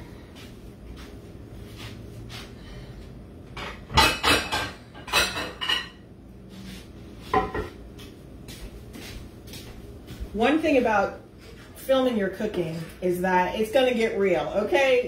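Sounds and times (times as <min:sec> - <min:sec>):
dishes and utensils clattering: 0:03.5 - 0:06.0, 0:07.3 - 0:07.8.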